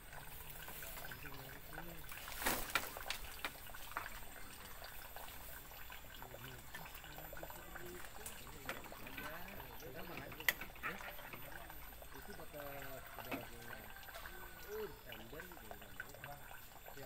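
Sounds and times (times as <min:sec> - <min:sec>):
water trickling: 0:00.0 - 0:17.0.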